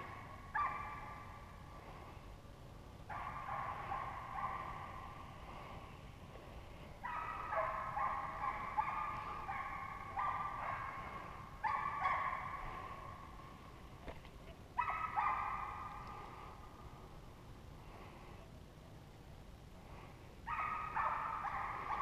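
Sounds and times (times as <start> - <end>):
hounds baying: 0.0 - 1.5, 3.1 - 5.1, 7.0 - 13.4, 14.8 - 16.6, 20.5 - 22.0.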